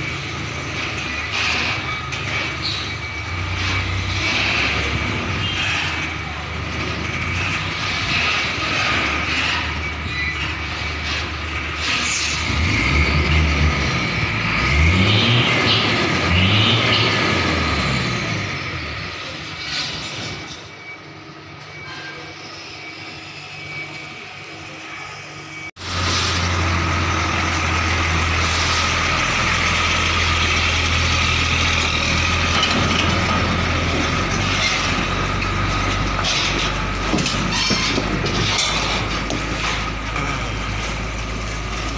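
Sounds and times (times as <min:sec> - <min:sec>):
diesel truck engine running: 0:00.0 - 0:19.5, 0:25.5 - 0:41.9
truck diesel engine running: 0:25.7 - 0:41.9.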